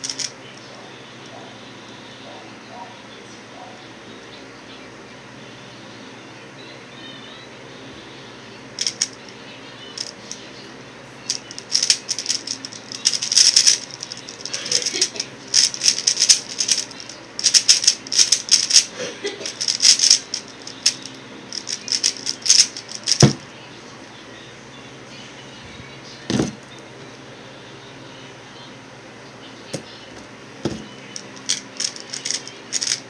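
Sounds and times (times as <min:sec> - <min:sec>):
puzzle cube layers clicking: 0:11.4 - 0:18.9, 0:19.6 - 0:23.3, 0:31.5 - 0:33.0.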